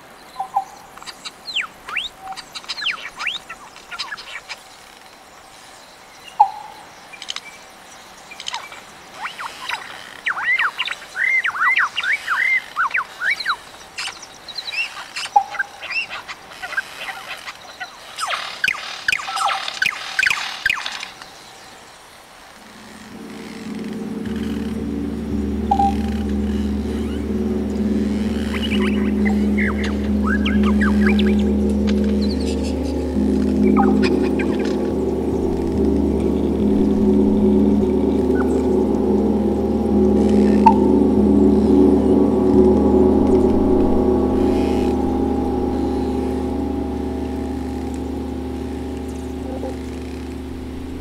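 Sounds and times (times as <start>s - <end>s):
low sustained drone: 22.6s - 51.0s
steady background hiss: 22.7s - 51.0s.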